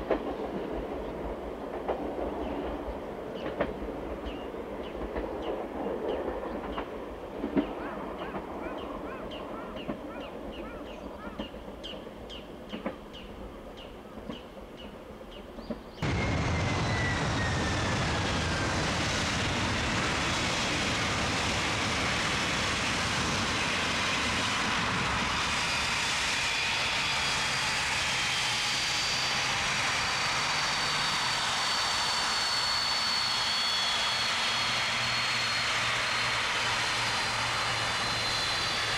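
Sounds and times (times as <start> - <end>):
jet engines taxiing: 15.9 - 38.9
high whistling jet whine: 16.0 - 38.9.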